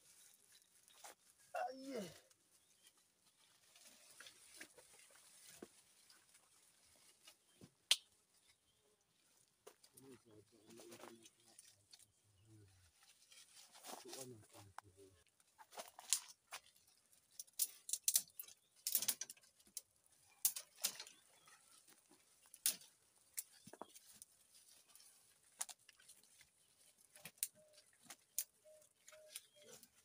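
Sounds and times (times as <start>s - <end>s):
twigs snapping: 7.9s - 8.2s, 15.7s - 21.2s, 21.8s - 29.9s.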